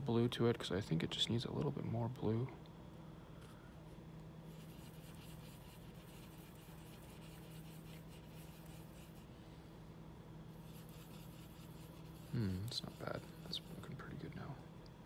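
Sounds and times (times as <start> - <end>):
low steady hum: 0.0 - 15.0
paintbrush brushing: 4.5 - 9.3, 10.6 - 14.0.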